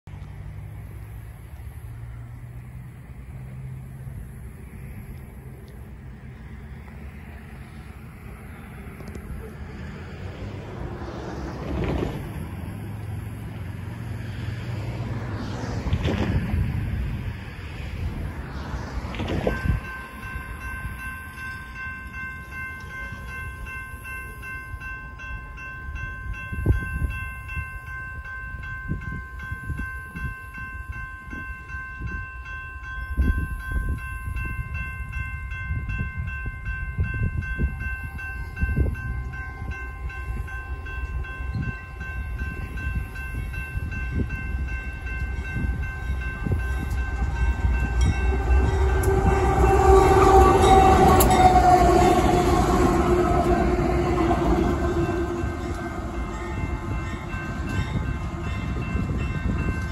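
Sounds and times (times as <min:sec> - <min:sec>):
locomotive engine and rail rumble: 0:00.0 - 0:59.9
ringing high tones: 0:18.0 - 0:59.9.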